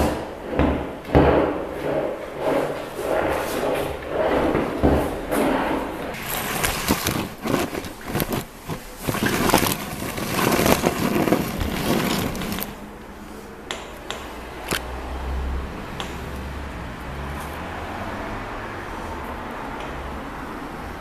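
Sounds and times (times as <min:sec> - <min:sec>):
knocks and clatter: 0:00.0 - 0:12.8
caster wheels rolling on concrete: 0:01.6 - 0:12.8.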